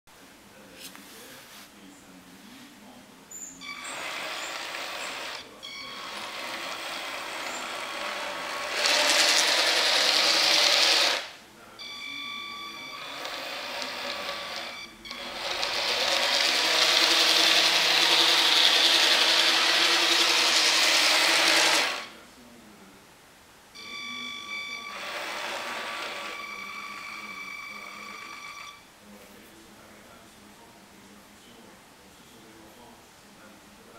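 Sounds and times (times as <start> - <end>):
model train motor whining: 3.7 - 11.4, 12.5 - 22.1, 23.8 - 28.8.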